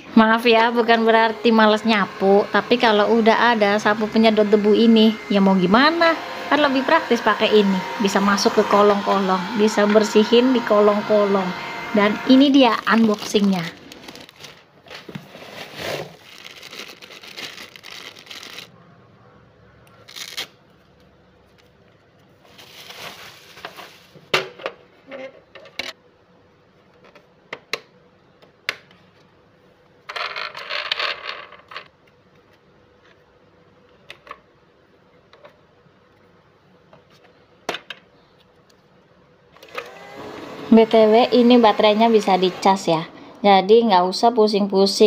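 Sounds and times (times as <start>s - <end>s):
plastic wrapping crinkling: 12.7s - 18.7s, 20.0s - 24.3s.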